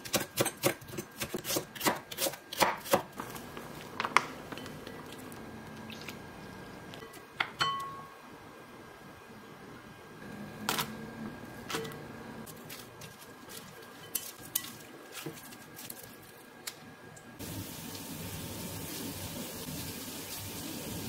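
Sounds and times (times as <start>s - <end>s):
vegetables mixed into batter: 11.4s - 16.8s
batter sizzling in oil: 17.4s - 21.0s.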